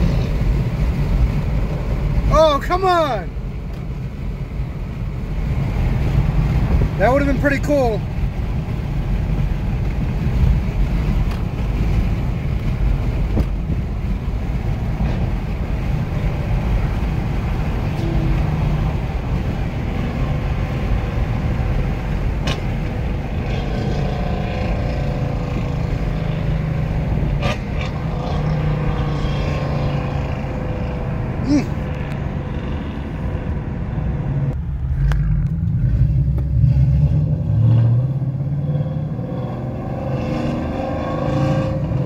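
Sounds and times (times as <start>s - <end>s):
car engine and road rumble: 0.0s - 42.0s.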